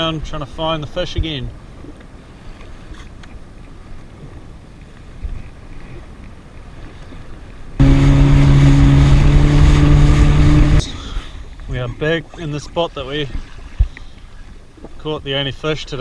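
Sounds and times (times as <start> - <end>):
choppy water: 0.0 - 16.0
soft wind: 0.0 - 16.0
jet ski engine hum: 5.6 - 11.5
water rushing and spraying: 7.8 - 11.5.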